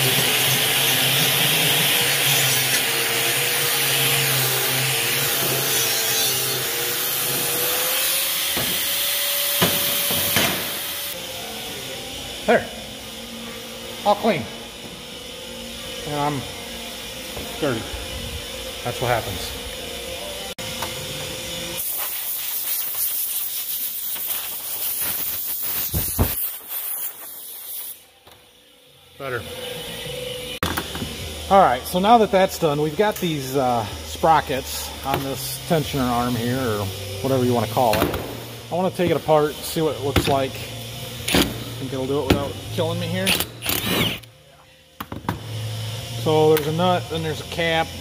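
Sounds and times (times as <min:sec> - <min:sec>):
compressed air blow gun hissing: 0:21.8 - 0:28.1.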